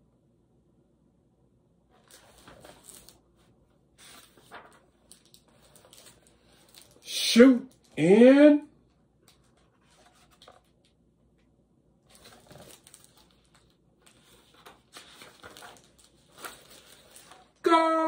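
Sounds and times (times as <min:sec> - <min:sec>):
paper pages rustling: 0:01.9 - 0:07.1, 0:09.2 - 0:11.0, 0:12.1 - 0:17.6.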